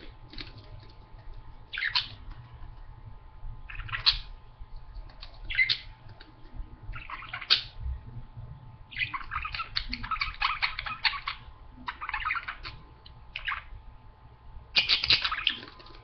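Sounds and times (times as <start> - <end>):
faint steady hum: 0.0 - 16.0
budgerigars chirping: 1.7 - 2.2, 3.7 - 4.3, 5.5 - 5.9, 6.9 - 7.8, 8.9 - 13.7, 14.8 - 15.9.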